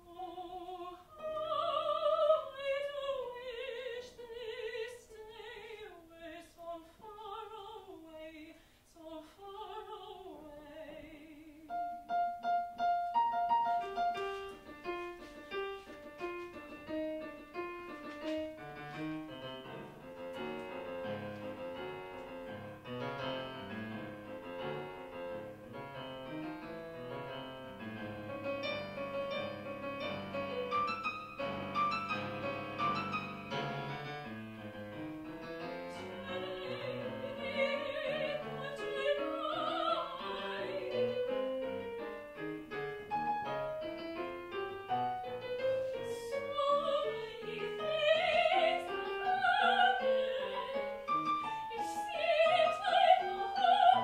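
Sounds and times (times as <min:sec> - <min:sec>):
soprano singing operatic line: 0:00.0 - 0:12.0, 0:35.6 - 0:41.9, 0:45.3 - 0:54.0
piano accompaniment: 0:11.6 - 0:54.0.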